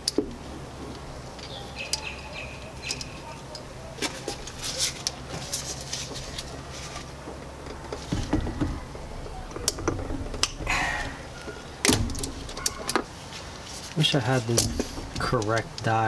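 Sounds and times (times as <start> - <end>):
dull thumps: 7.8 - 13.1.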